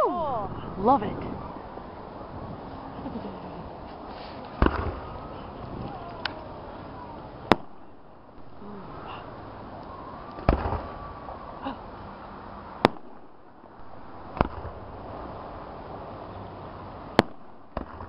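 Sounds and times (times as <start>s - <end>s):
low rumble: 0.0s - 3.8s
firework crackling: 0.0s - 12.0s, 12.8s - 15.8s, 17.1s - 18.0s
firework shells bursting: 4.4s - 6.4s, 10.2s - 11.0s.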